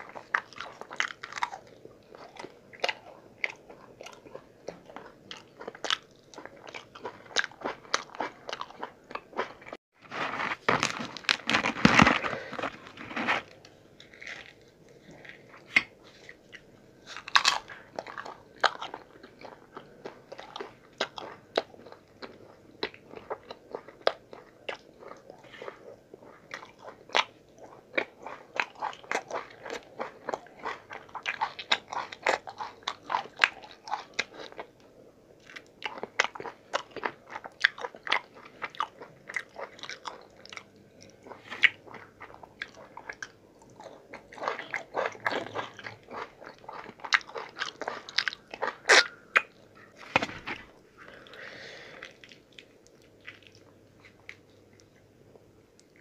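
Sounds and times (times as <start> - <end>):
man chewing and mouth sounds: 0.0 - 9.8, 10.6 - 56.0.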